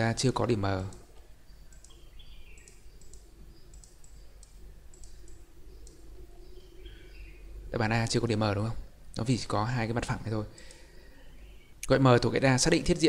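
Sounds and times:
faint steady hum: 0:00.0 - 0:13.0
computer mouse clicking: 0:00.8 - 0:07.1, 0:10.5 - 0:10.9.

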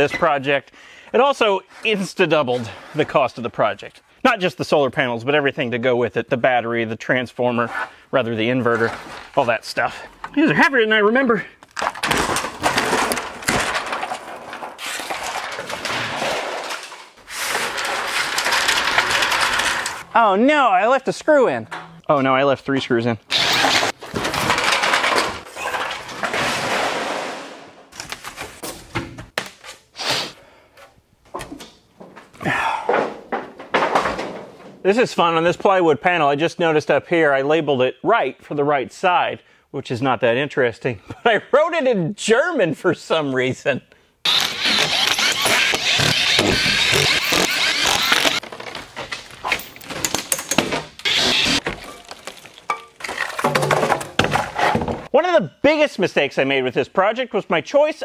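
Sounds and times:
foam boards knocking and rustling: 0:11.8 - 0:19.6, 0:32.9 - 0:34.8, 0:51.6 - 0:55.1
roof panel scraping: 0:11.9 - 0:20.0, 0:44.3 - 0:49.6
cordless drill running: 0:44.3 - 0:48.4, 0:51.1 - 0:51.6.

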